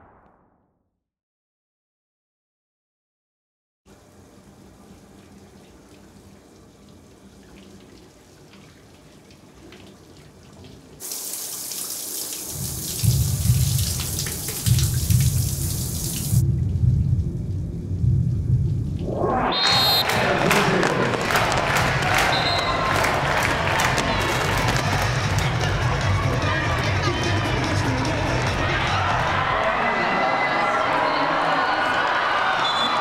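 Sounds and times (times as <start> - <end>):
shower head spraying water: 11.0 - 16.4
low pulsing rumble: 16.4 - 19.6.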